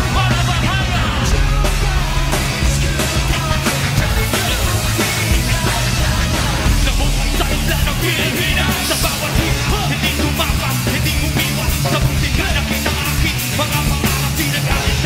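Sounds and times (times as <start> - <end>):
live rock band playing: 0.0 - 15.0
person singing: 0.0 - 15.0.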